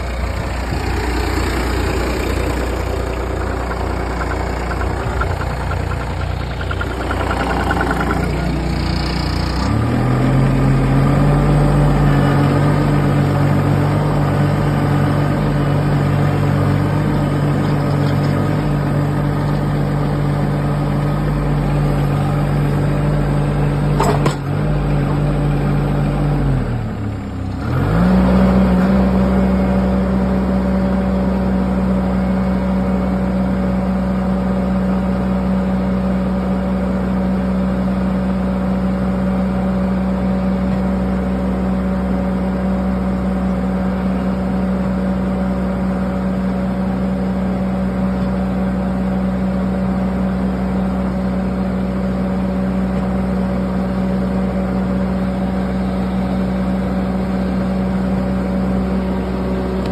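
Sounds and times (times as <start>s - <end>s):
leveler pushing through soil: 0.0s - 26.7s
skid steer engine running: 0.0s - 59.9s.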